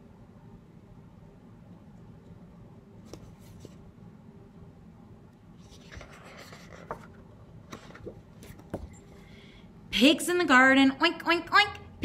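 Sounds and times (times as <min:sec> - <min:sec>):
light taps of book handling: 0:03.0 - 0:03.8
book page turning: 0:05.6 - 0:07.2.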